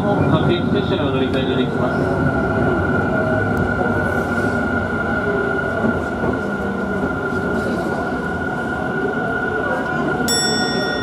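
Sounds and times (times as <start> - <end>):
electric train rumble: 0.0 - 11.0
constant high tone: 10.3 - 11.0.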